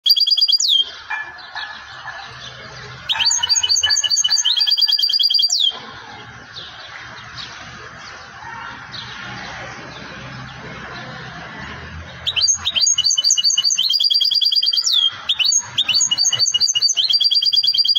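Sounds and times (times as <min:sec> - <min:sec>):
faint bird chirps: 0:00.0 - 0:05.8
goldfinch singing: 0:00.0 - 0:06.0, 0:12.1 - 0:17.9.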